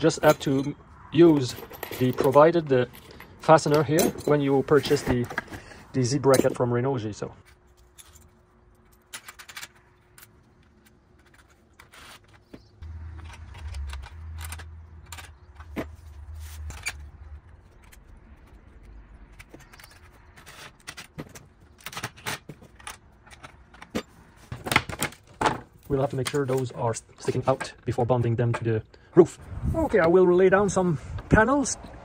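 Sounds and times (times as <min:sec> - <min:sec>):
metal clinks of bolts and wrench: 0:00.1 - 0:00.8, 0:01.4 - 0:05.1.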